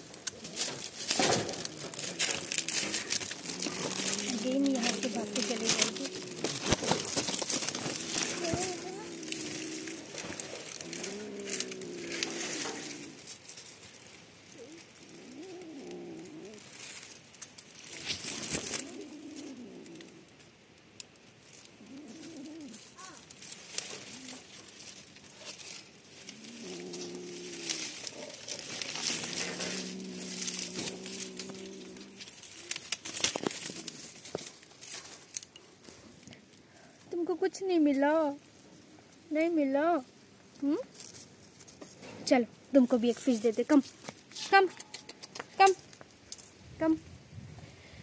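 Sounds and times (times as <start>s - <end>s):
kitten chewing: 0.0s - 12.4s
kitten growling low: 0.0s - 13.3s, 14.6s - 16.8s, 18.6s - 20.4s, 21.8s - 23.3s, 26.1s - 32.8s
dry leaves crackling: 0.0s - 47.1s.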